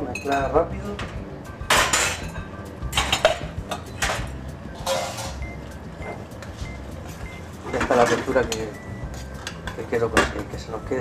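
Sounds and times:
utensil scraping a pan: 4.8s - 5.4s.

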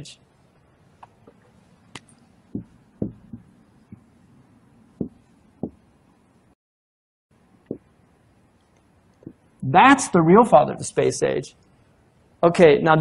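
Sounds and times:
marker knocking on whiteboard: 2.5s - 4.1s, 5.0s - 5.8s.

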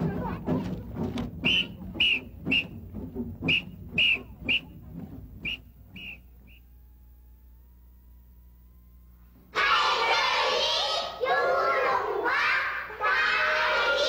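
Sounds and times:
crowd noise: 0.0s - 6.6s, 9.5s - 14.0s
shrill whistle blasts: 1.4s - 4.8s, 5.4s - 6.7s.

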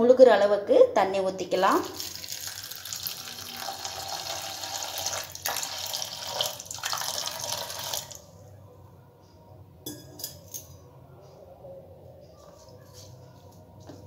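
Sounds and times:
water pouring into metal bowl: 1.8s - 8.2s.

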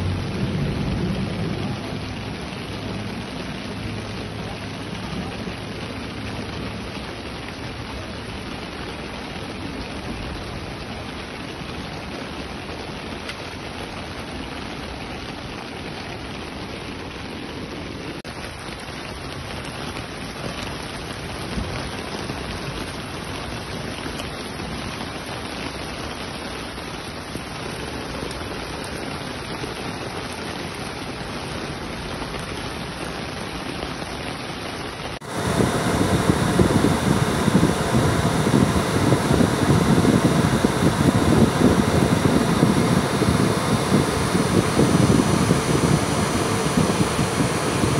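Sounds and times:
heavy rain on water and pavement: 0.0s - 47.9s
loud low noise: 35.2s - 47.9s.

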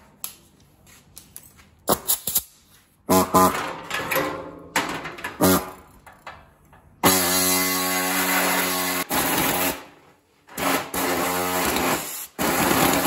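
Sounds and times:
sheet steel clanking: 3.1s - 7.0s.

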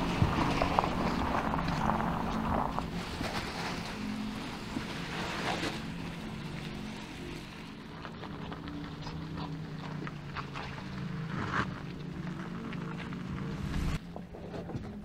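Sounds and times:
tyre and wind noise: 0.0s - 6.5s.

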